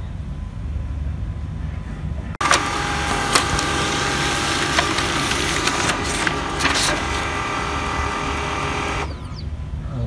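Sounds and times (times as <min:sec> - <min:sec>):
paper feed clicks: 0:02.4 - 0:09.3
laser printer whirring: 0:02.4 - 0:09.4.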